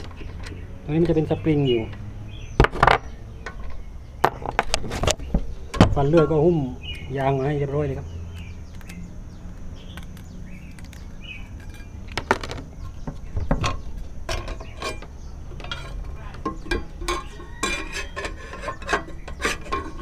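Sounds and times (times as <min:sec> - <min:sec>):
metal parts clinking and knocking: 0:13.6 - 0:20.0.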